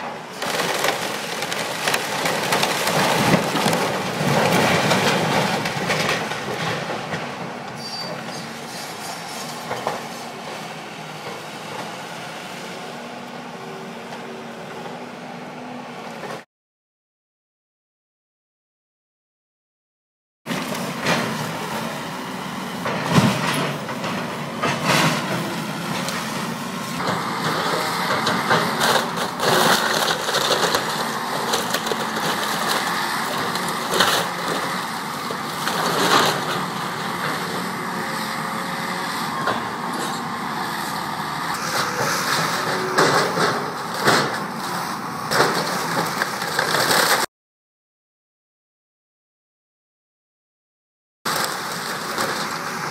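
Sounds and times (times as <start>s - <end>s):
excavator running: 0.0s - 16.4s, 20.5s - 47.3s, 51.3s - 52.9s
falling debris: 0.3s - 7.3s, 27.0s - 37.6s, 45.3s - 47.3s
splintering timber cracking: 0.4s - 6.7s, 27.0s - 37.4s, 45.3s - 47.3s.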